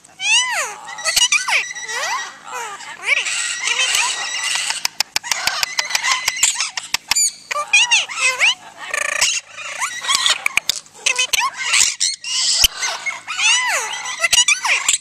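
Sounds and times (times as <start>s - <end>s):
parrots chirping and whistling: 0.2s - 15.0s
parrot clicks: 4.5s - 7.3s, 10.1s - 10.9s.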